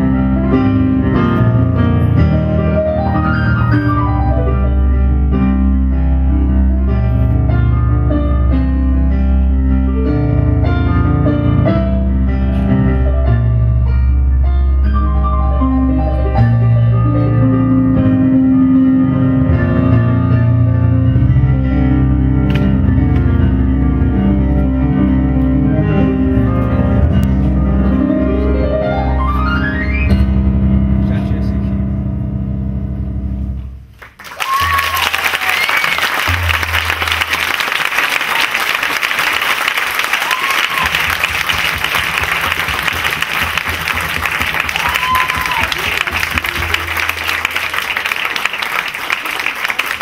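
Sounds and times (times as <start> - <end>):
busy keyboard melody: 0.0 - 33.9
low keyboard bass notes: 0.0 - 34.0, 36.2 - 37.7.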